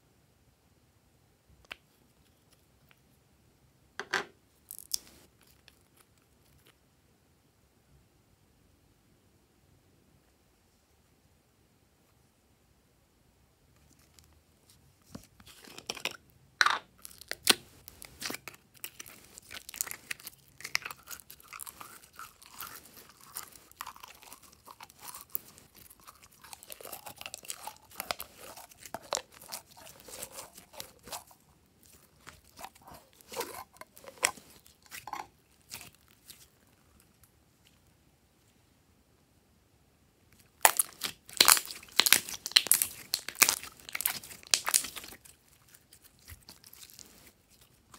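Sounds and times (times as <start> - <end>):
sticky slime squelching and popping: 16.9 - 36.7, 40.4 - 47.9.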